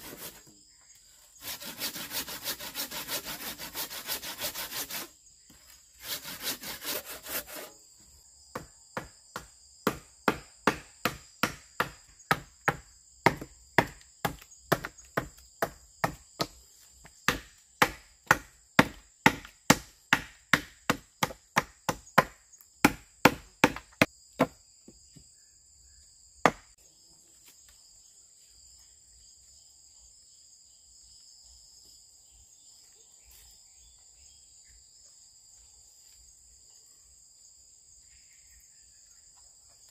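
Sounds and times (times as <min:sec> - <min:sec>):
hand saw sawing: 0:00.0 - 0:00.5, 0:01.3 - 0:05.2, 0:06.0 - 0:07.8
crickets and insects chirring: 0:00.0 - 0:39.9
chopping wood: 0:08.5 - 0:16.6, 0:17.2 - 0:24.6, 0:26.4 - 0:26.7.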